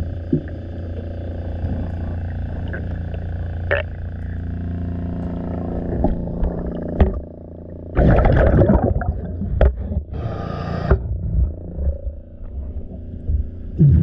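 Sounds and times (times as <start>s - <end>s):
underwater bubbles gurgling: 0.0s - 4.4s, 5.2s - 10.1s
steady mechanical hum: 0.0s - 14.0s.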